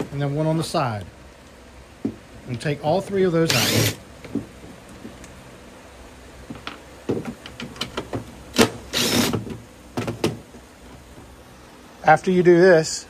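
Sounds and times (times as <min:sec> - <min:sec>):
impact driver running: 0:03.5 - 0:04.0, 0:08.6 - 0:09.4
clicks and knocks of handling tools: 0:06.5 - 0:10.4.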